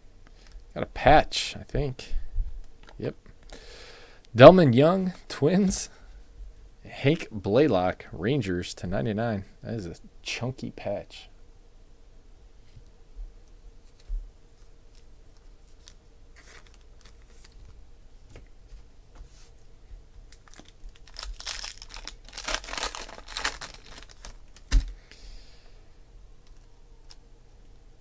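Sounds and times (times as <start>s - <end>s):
foil wrapper tearing and crinkling: 14.9s - 17.7s, 20.3s - 24.9s.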